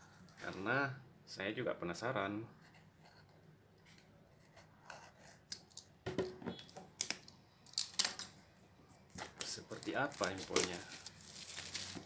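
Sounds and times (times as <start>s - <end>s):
plastic wrap rustling and crinkling: 9.1s - 12.0s
plastic wrap being slit: 9.4s - 12.0s.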